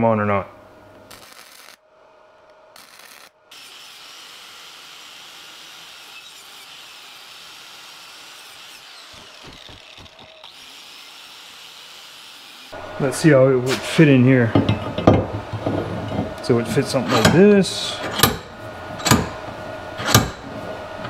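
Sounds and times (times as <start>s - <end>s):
arc welding hiss: 1.1s - 1.8s, 2.7s - 8.5s.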